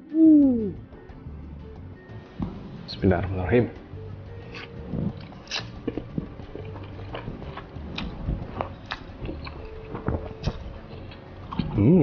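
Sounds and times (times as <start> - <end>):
person slurping and chewing noodles: 4.4 - 12.0.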